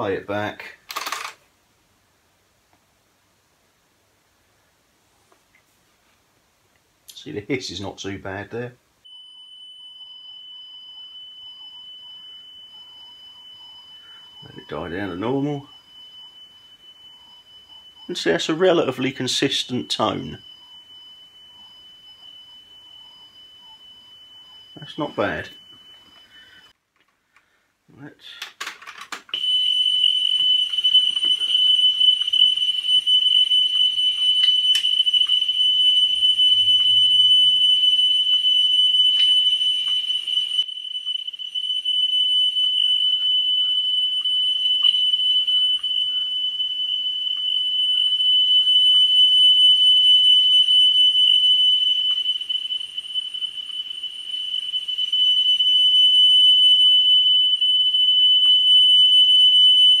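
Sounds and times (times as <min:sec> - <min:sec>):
steady high test tone: 0:07.1 - 0:26.8, 0:29.4 - 0:56.1.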